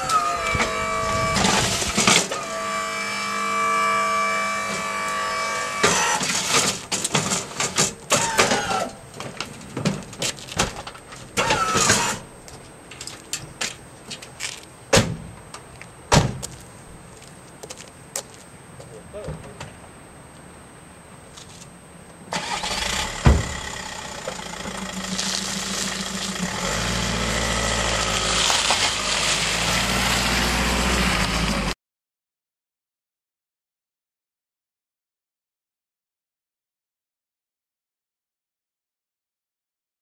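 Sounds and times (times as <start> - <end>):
lift trolley motor whining: 0.0 - 6.8, 22.3 - 31.7
van doors slamming: 16.1 - 16.5, 22.4 - 23.8.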